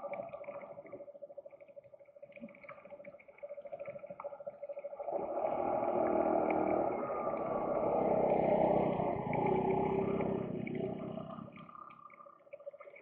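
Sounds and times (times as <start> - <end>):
coach engine and tyres passing: 5.8 - 11.4.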